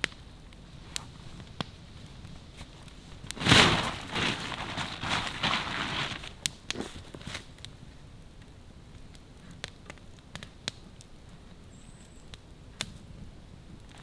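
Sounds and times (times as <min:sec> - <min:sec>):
sharp fire pops: 0:00.0 - 0:07.7, 0:09.1 - 0:10.9
campfire crackling: 0:00.0 - 0:14.0.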